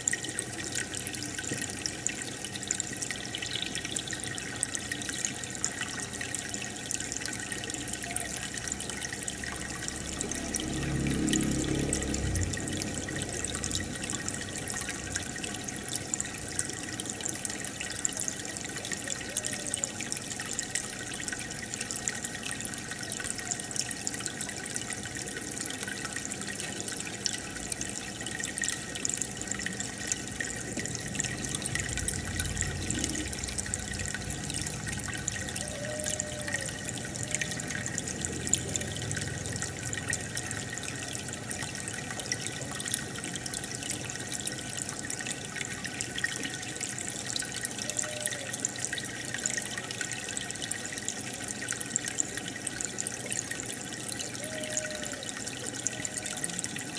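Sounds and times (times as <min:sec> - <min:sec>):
aquarium water bubbling: 0:00.0 - 0:56.9
low hum: 0:09.3 - 0:16.0, 0:30.3 - 0:40.9.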